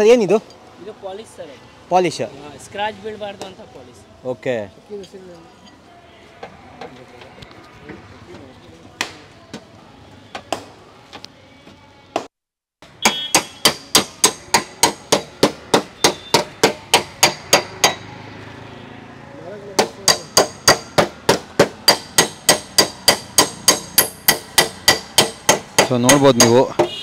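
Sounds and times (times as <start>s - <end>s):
metal-on-metal tapping: 19.8s - 27.0s.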